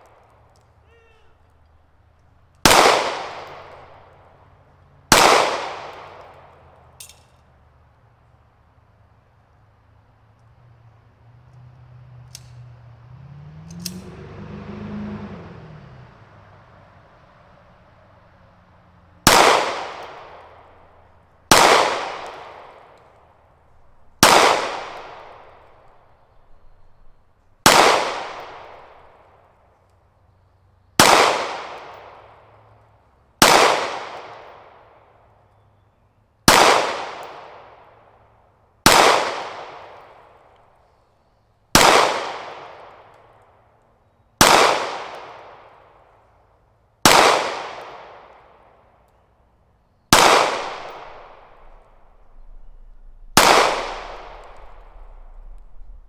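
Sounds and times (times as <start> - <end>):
pistol shots echoing: 2.6 - 4.3, 5.1 - 7.3, 19.2 - 29.3, 31.0 - 32.4, 33.4 - 35.0, 36.5 - 38.0, 38.8 - 40.4, 41.7 - 43.3, 44.4 - 46.1, 47.0 - 48.9, 50.1 - 56.0.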